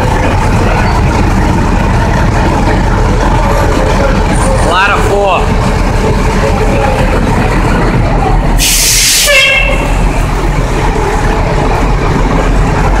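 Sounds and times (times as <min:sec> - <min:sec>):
fire truck engine running: 0:00.0 - 0:13.0
air brake hiss: 0:08.6 - 0:09.3.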